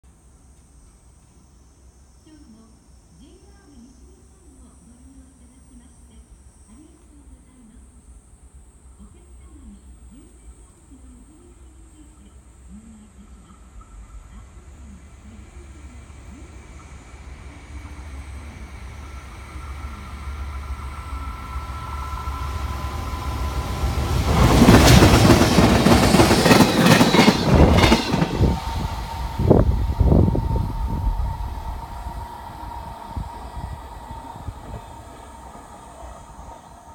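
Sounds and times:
electric locomotive passing: 11.0 - 36.9
rapid train wheel clacks: 16.7 - 30.2, 31.7 - 36.9.

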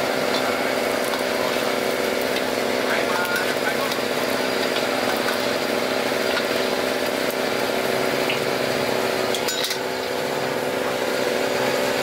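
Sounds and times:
food sizzling in bubbling oil: 0.0 - 12.0.

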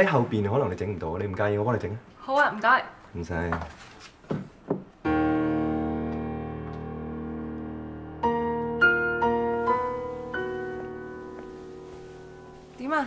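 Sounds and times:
piano chord and notes: 5.0 - 13.0.

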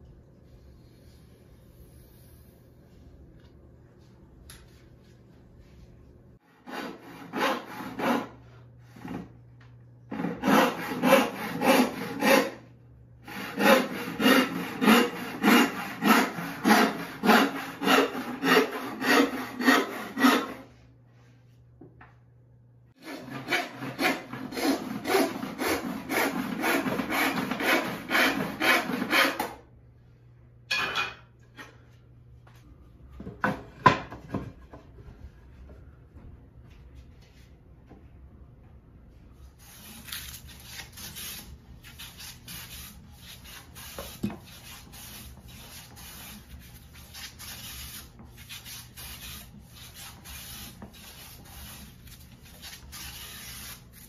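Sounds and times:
handsaw cutting wood: 6.5 - 8.4, 10.1 - 12.6, 13.2 - 20.7, 23.0 - 29.5.

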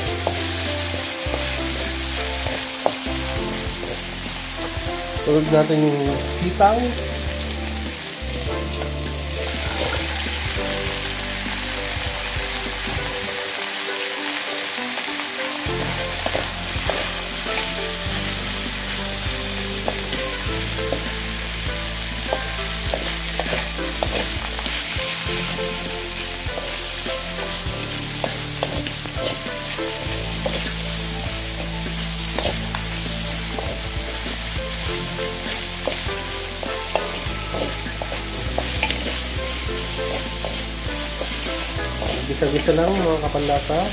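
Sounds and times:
food sizzling in a wok: 0.0 - 43.9
wooden spatula scraping a pan: 15.7 - 43.9.

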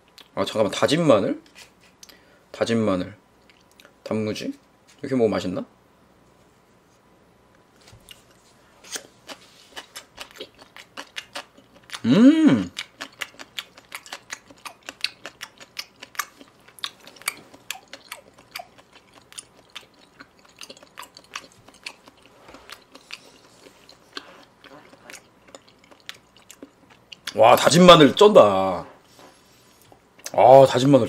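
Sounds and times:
wet chewing mouth sounds: 8.0 - 27.4
person humming: 12.0 - 12.8.

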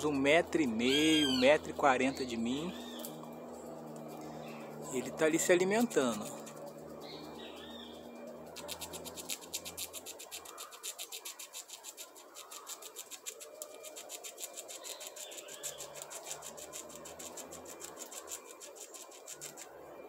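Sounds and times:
faint bird calls: 0.6 - 3.4, 10.3 - 19.7
squirrel gnawing nut shell: 2.7 - 19.8.

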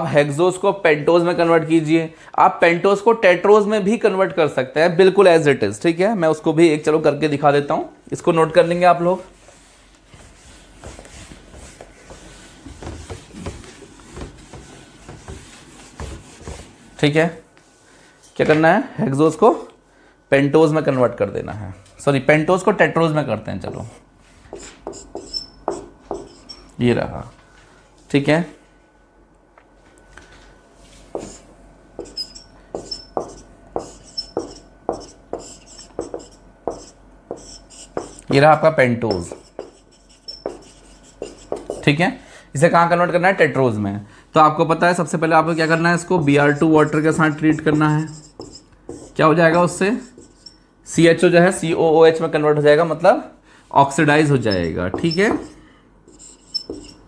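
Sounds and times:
eraser rubbing on whiteboard: 9.4 - 16.8, 24.5 - 26.6, 30.9 - 38.2, 39.1 - 41.8, 46.4 - 50.5, 55.2 - 57.0
marker tip squeaking: 24.9 - 26.7, 32.0 - 38.2, 39.1 - 41.6, 56.1 - 57.0.

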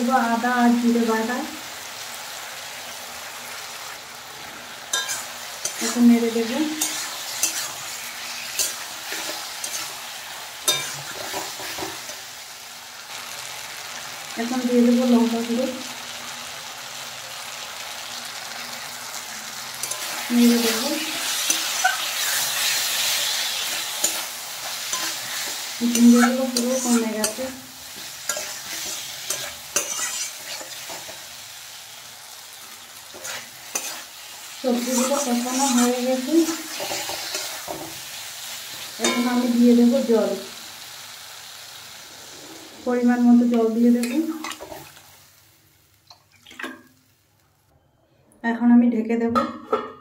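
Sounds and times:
vegetables sizzling in oil: 0.0 - 47.7
metal spatula scraping a pan: 4.9 - 12.2, 19.8 - 31.4, 33.0 - 39.6.

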